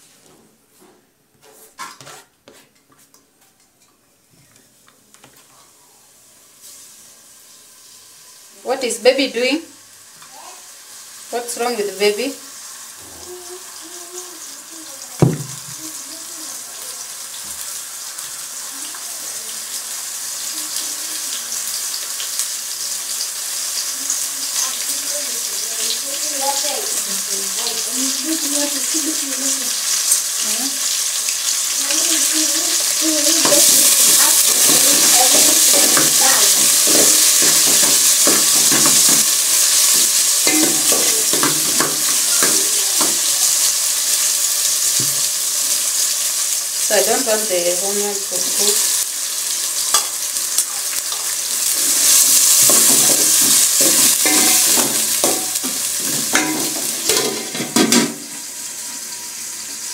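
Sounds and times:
vegetables sizzling in oil: 4.6 - 59.9
sharp knock: 15.2 - 15.8
metal spoon stirring pot: 33.3 - 43.3, 50.8 - 58.0.

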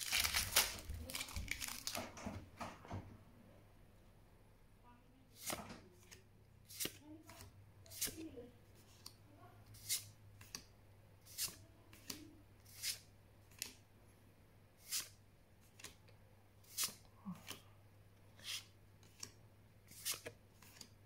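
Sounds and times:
cards sliding with papery swish: 11.3 - 11.6, 16.6 - 17.6, 18.4 - 19.3, 19.9 - 20.9.

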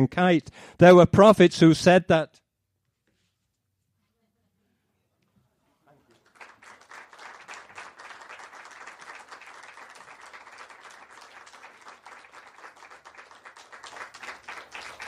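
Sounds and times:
audience applauding: 6.1 - 15.0.

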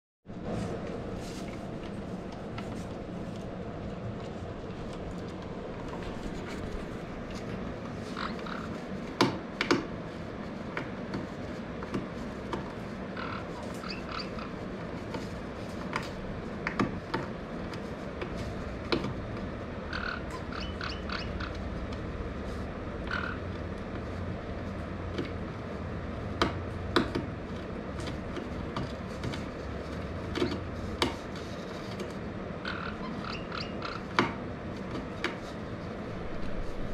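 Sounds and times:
steady low hum: 0.3 - 36.9
parrot gnawing wood: 1.5 - 36.9
parrot squeaks: 13.2 - 14.5, 19.9 - 21.6, 23.1 - 23.4, 32.6 - 34.1.

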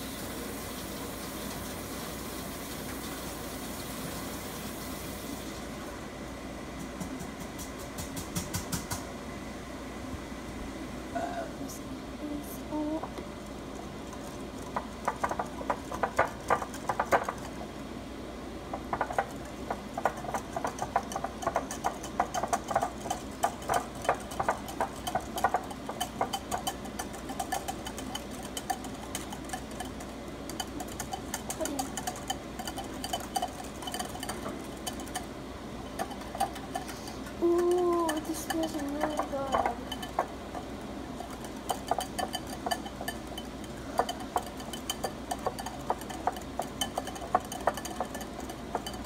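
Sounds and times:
whisk clicking against bowl: 14.0 - 17.7, 18.7 - 49.0.

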